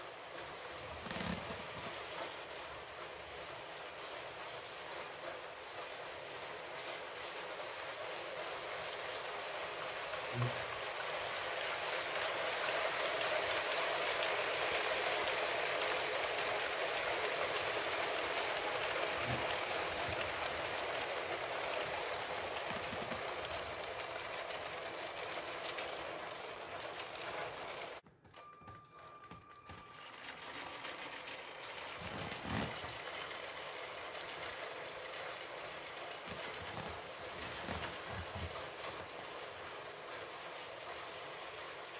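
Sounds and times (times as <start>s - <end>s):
electric train motors whirring: 0.0s - 41.9s
toy train wheels rattling on track: 0.0s - 41.9s.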